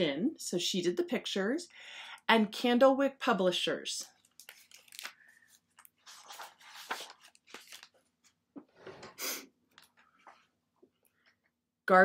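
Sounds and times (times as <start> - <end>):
book pages rustling: 4.2 - 8.8.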